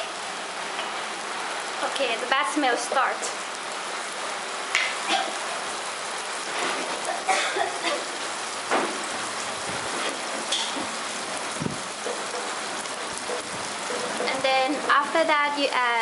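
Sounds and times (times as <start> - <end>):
paste sizzling in hot oil: 0.0 - 16.0
oil spitting and crackling: 4.6 - 15.0.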